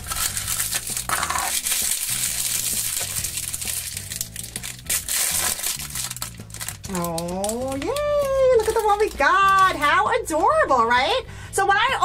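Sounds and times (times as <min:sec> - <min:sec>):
foil packet crinkling: 0:00.0 - 0:09.9
soft background music: 0:00.0 - 0:12.0.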